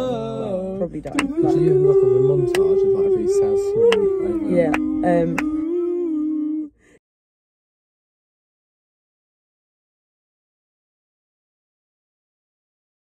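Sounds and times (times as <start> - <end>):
two voices singing long notes: 0.0 - 6.8.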